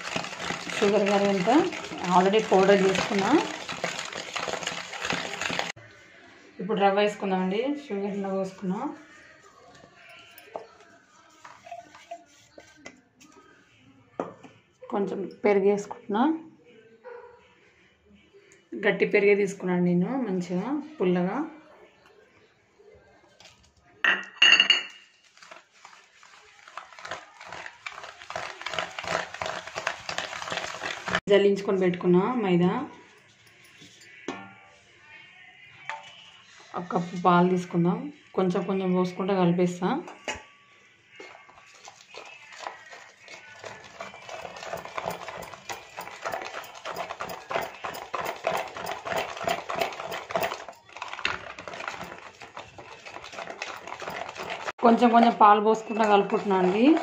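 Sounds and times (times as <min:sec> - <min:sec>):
whisk scraping metal bowl: 0:00.0 - 0:05.8, 0:10.4 - 0:13.0, 0:25.3 - 0:31.2, 0:41.2 - 0:57.0.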